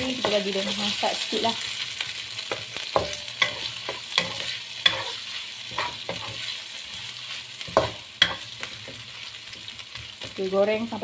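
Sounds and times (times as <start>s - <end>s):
food sizzling in hot oil: 0.0s - 11.0s
spatula scraping and tapping pan: 2.4s - 10.4s.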